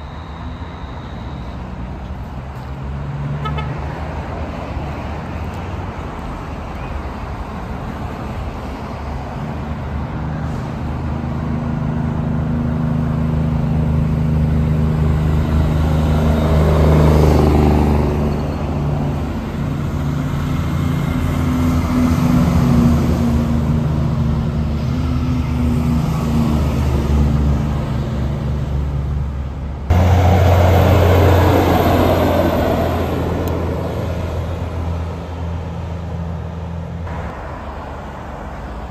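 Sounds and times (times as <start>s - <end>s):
diesel trucks driving past: 0.0s - 38.9s
low engine drone: 21.9s - 35.6s.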